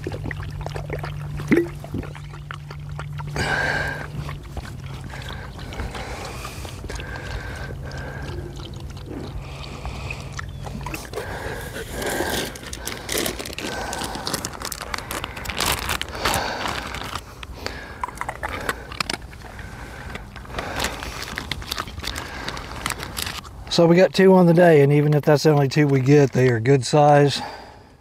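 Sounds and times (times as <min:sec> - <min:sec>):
low hum: 0:00.0 - 0:23.7
water pouring and gurgling: 0:00.0 - 0:23.7
splashing and scraping: 0:00.0 - 0:23.9.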